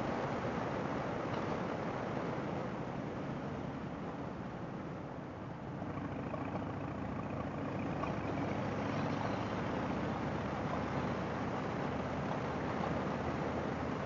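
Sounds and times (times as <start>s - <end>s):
motorcycle engine running: 5.8s - 13.0s.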